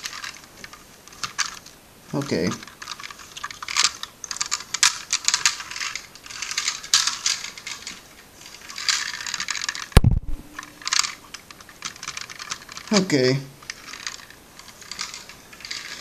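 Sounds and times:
toy car clicking and rattling: 0.0 - 1.7, 2.5 - 10.0, 10.8 - 16.0
sharp knock: 10.0 - 10.8.

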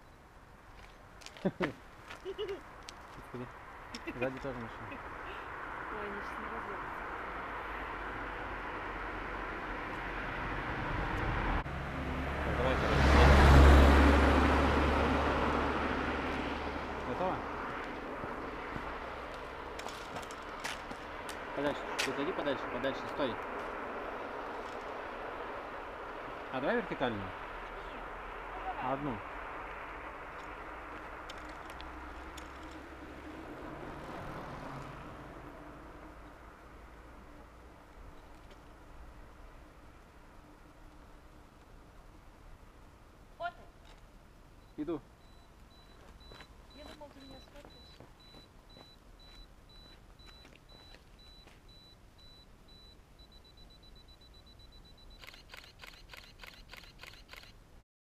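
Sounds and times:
distant car passing: 2.6 - 43.2
self-timer beeping: 44.6 - 57.5
camera shutter clicks: 55.2 - 57.6.

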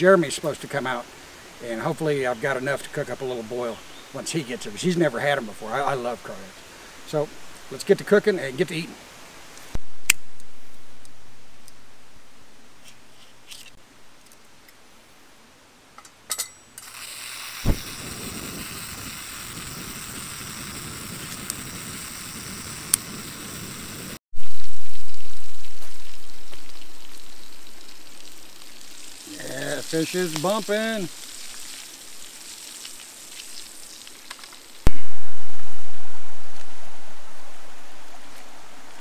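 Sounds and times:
camp stove and frying pan hissing: 16.7 - 39.0.

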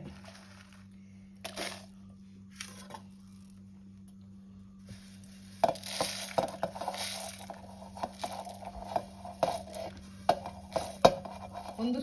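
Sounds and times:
seeds pattering into steel jar: 1.4 - 1.9, 5.0 - 12.0
seeds clinking on plate: 5.0 - 12.0.

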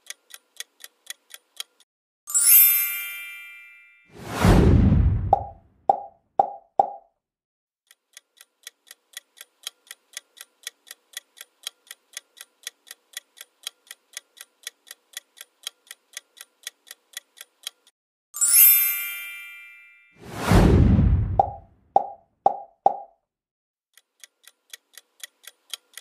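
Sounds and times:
clock ticking: 0.0 - 1.9, 7.9 - 17.9, 24.0 - 26.0
bright chime: 2.3 - 4.2, 18.4 - 20.2
loud whoosh: 4.2 - 5.6, 20.2 - 21.6.

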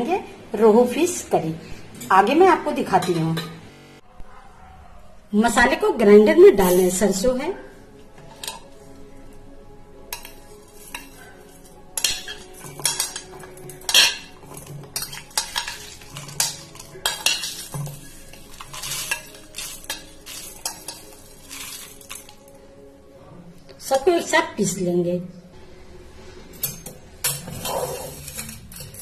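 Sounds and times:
spices rattling into a metal jar: 12.0 - 22.4
spoon scraping a plate: 26.6 - 29.0.

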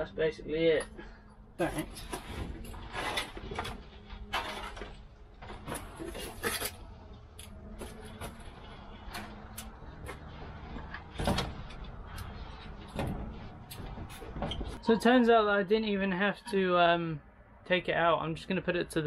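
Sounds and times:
metal shelving knocking and rattling: 7.8 - 14.8.

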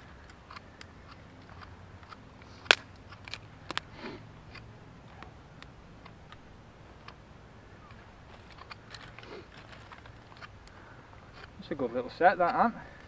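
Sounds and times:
twigs snapping: 0.0 - 6.4, 7.8 - 11.8.

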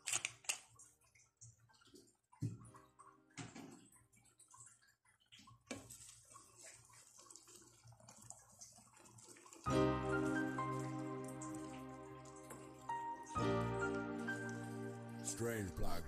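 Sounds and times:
cream sauce simmering in a pan: 3.4 - 11.6.

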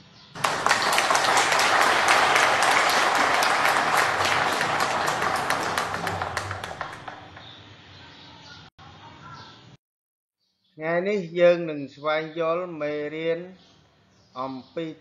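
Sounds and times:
crowd clapping: 0.4 - 7.5.

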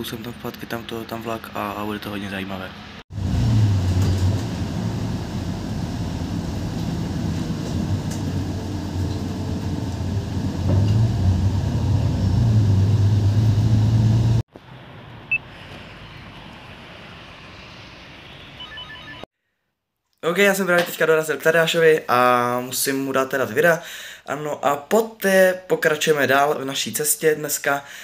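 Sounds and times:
bus engine running: 3.1 - 14.9.

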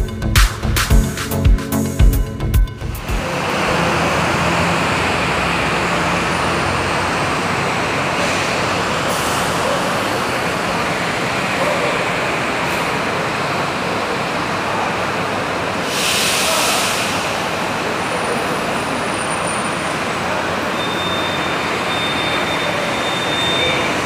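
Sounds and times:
busy bus terminal din: 0.0 - 24.0
diesel bus running at low speed: 0.0 - 24.0
compressed-air hiss: 15.8 - 17.4.

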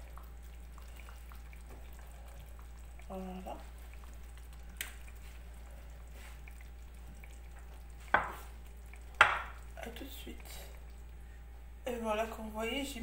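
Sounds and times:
faint low hum: 0.0 - 13.0
potatoes plopping into sauce: 2.6 - 5.2.

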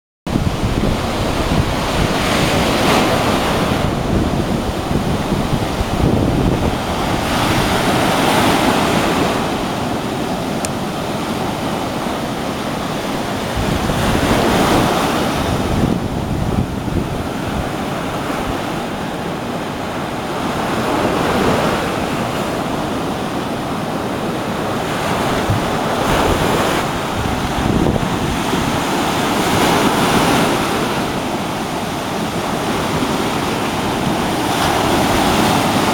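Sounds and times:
surf breaking on beach: 0.3 - 35.9
wind buffeting microphone: 0.3 - 35.9.

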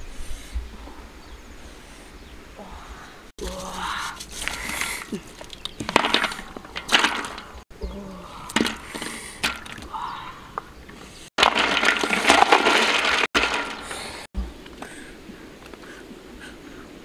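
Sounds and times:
wood fire cracks: 11.4 - 14.3.

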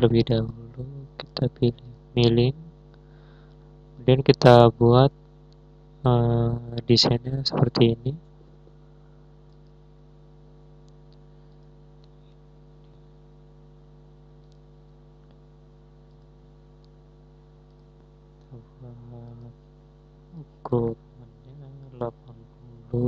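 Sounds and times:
electrical mains hum: 0.0 - 23.0
computer mouse clicks: 17.6 - 17.9.

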